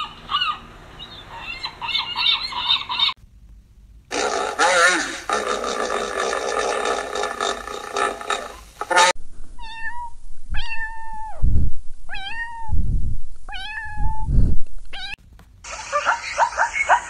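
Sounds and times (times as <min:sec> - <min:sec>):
kitten meowing: 0:09.6 - 0:11.4, 0:12.1 - 0:12.8, 0:13.5 - 0:14.3.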